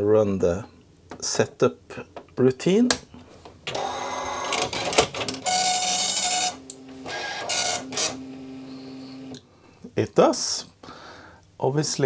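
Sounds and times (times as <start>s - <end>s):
printer head rasping: 3.7s - 8.2s
printer motor humming: 3.7s - 9.4s.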